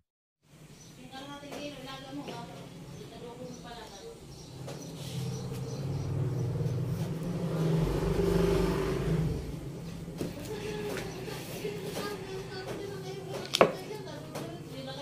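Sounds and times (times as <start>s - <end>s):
vehicle engine passing by: 4.3s - 13.0s.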